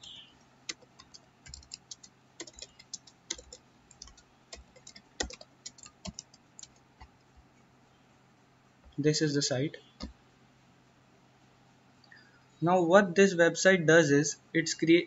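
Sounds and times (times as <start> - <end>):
keyboard typing clicks: 0.7 - 7.2.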